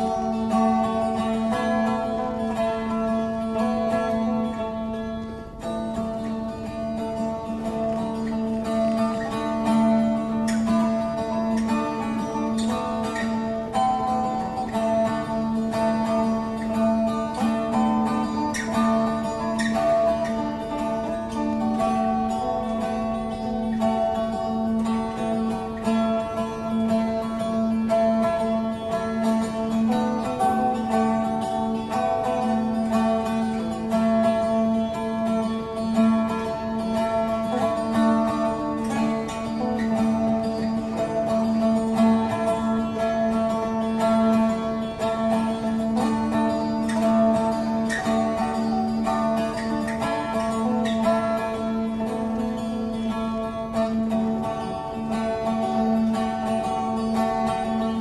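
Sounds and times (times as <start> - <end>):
plucked string music: 0.0 - 58.0.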